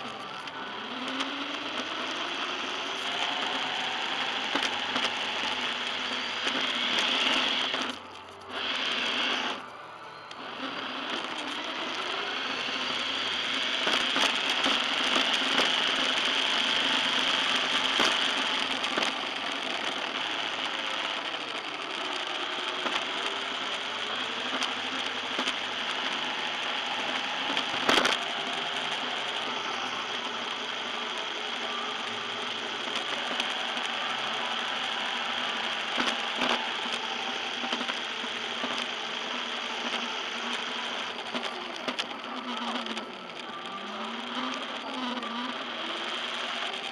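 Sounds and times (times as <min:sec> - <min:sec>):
rc car motor whirring: 0:00.0 - 0:09.7.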